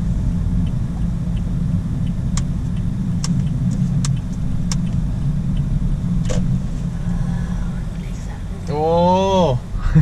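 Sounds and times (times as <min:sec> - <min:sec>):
car engine and road noise rumble: 0:00.0 - 0:10.0.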